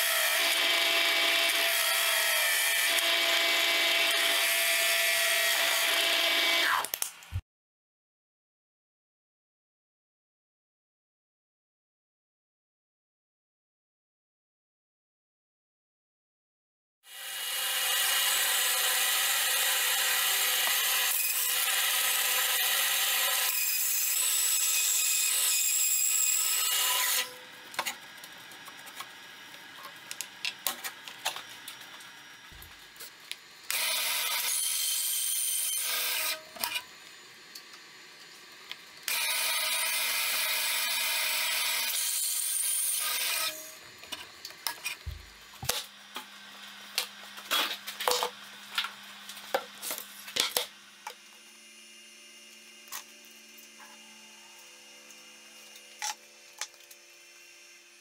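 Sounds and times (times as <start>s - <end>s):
bandsaw cutting wood: 0.0s - 7.0s, 17.1s - 28.0s, 33.7s - 37.0s, 39.0s - 45.9s.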